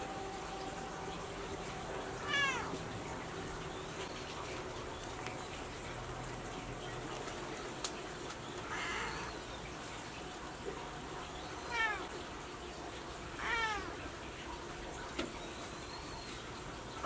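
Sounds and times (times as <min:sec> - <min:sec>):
cat meowing: 0:02.2 - 0:02.7, 0:08.7 - 0:09.4, 0:11.6 - 0:12.2, 0:13.4 - 0:14.0.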